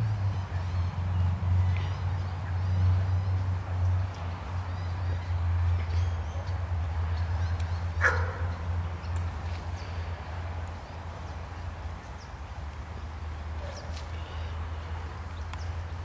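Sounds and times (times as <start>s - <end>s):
dog barking: 8.0s - 8.5s.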